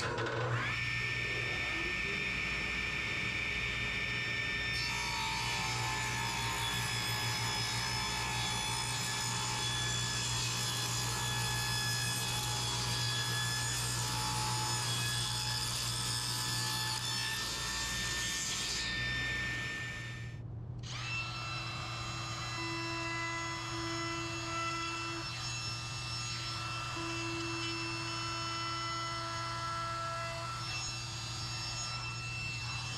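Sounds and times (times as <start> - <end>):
router whining: 0.0 - 32.9
table saw cutting wood: 0.0 - 32.9
low hum: 19.2 - 25.1.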